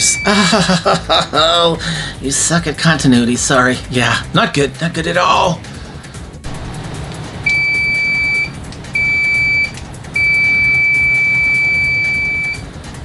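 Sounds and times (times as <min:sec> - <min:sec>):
multimeter high-pitched beeps: 0:00.0 - 0:00.4, 0:07.5 - 0:12.6.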